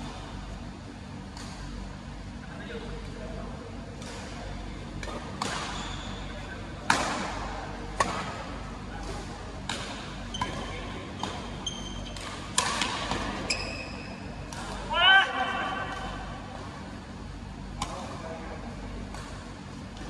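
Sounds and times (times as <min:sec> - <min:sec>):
court shoes squeaking: 0:05.4 - 0:06.6, 0:09.1 - 0:14.8.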